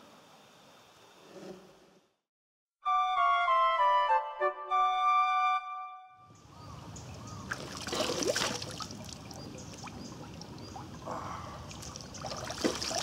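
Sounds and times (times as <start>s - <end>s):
mountain stream trickling: 6.7s - 13.0s
hands splashing water on face: 7.5s - 9.4s, 11.7s - 13.0s.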